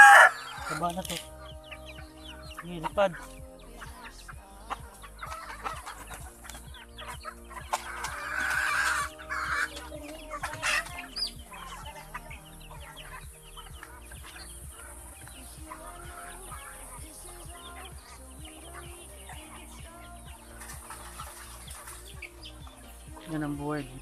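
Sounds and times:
loud rough chicken squawk: 0.0 - 0.8, 7.9 - 9.7
chickens clucking: 0.0 - 24.0.

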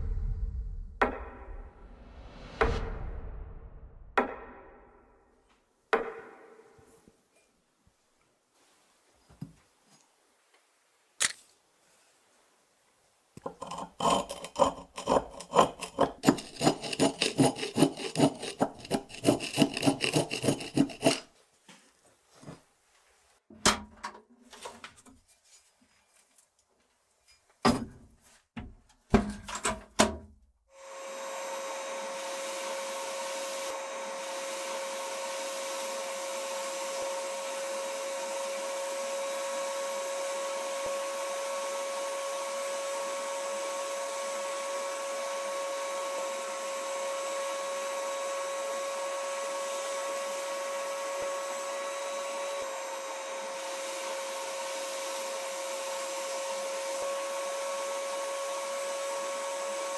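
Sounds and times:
file scraping metal: 13.4 - 21.3
knocks and scrapes: 13.4 - 22.7.

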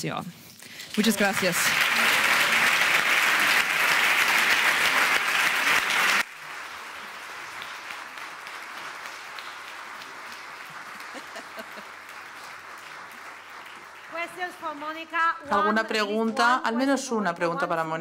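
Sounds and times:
audience applauding: 0.7 - 15.4
faint scattered claps: 0.9 - 15.0.

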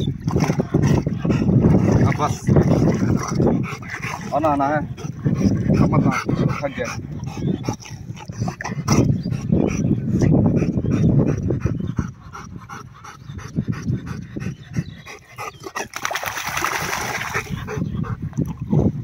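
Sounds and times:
dog panting: 0.4 - 15.9, 17.2 - 19.0
dog splashing through water: 15.6 - 17.8.

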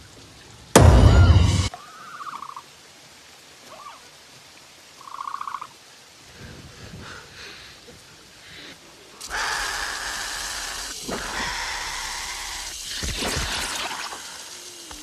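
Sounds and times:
heavy rain: 0.0 - 15.0
rushing water: 0.0 - 15.0.

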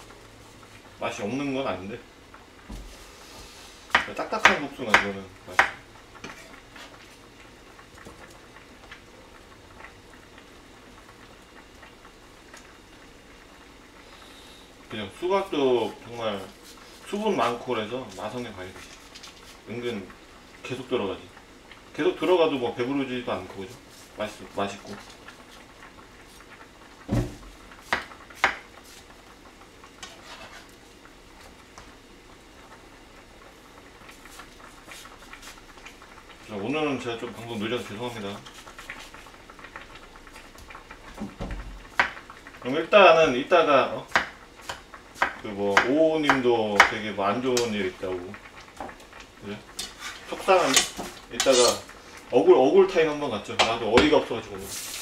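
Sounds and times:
steady faint hiss: 0.0 - 55.0
knife cutting on cutting board: 30.1 - 30.6
knife cutting watermelon: 51.4 - 51.8.

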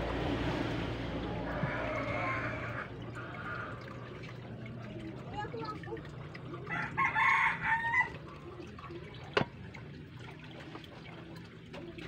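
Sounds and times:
low hum: 0.0 - 5.1
water trickling into fish tank: 0.0 - 12.0.

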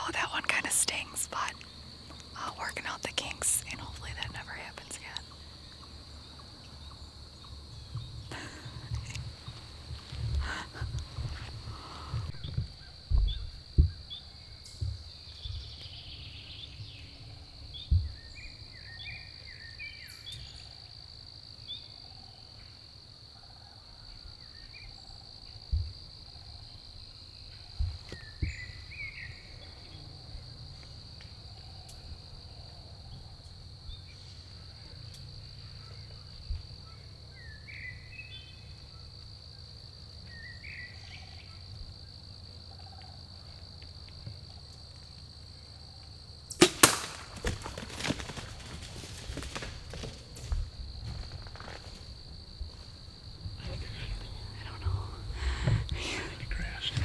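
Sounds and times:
insect chorus drone: 0.0 - 57.0
low thumps near microphone: 7.9 - 14.2, 17.8 - 18.2.

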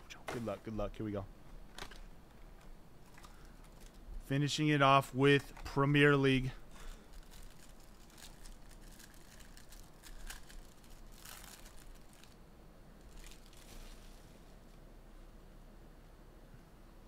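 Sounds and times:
plastic wrapper tearing and crinkling: 6.8 - 12.4, 13.0 - 14.4.

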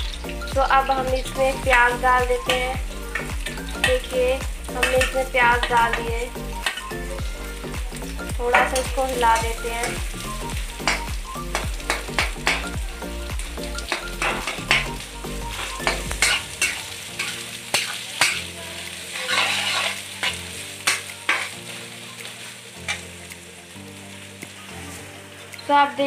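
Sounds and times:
onions sizzling in hot oil: 0.0 - 26.0
metal spatula scraping a pan: 13.9 - 21.6.

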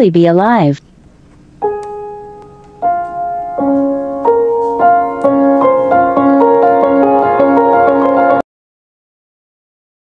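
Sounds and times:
piano notes: 1.4 - 8.4.

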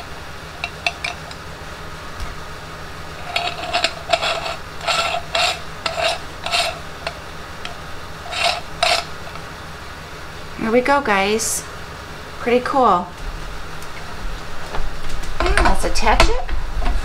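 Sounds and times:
metal parts scraping together: 0.6 - 1.4, 3.2 - 9.4.

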